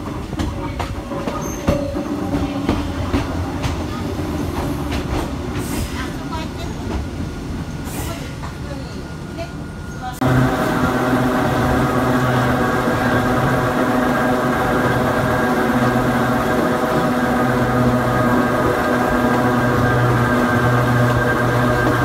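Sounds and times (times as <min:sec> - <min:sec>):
electric train motors humming and whining: 0:08.4 - 0:22.0.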